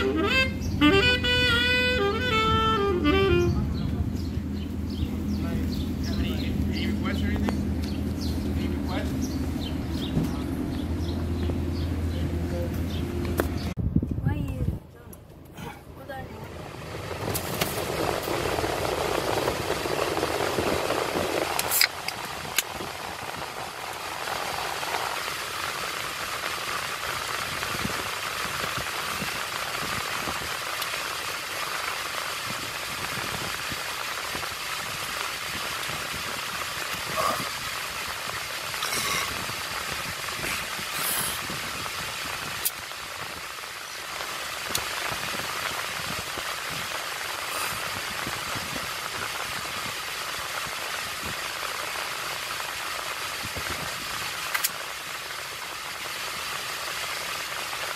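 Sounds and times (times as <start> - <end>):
rushing noise inside car: 16.0 - 30.9.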